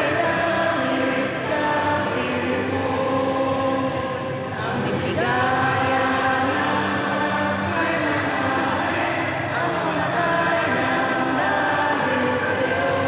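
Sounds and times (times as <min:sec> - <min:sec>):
anthem sung with music: 0:00.0 - 0:13.0.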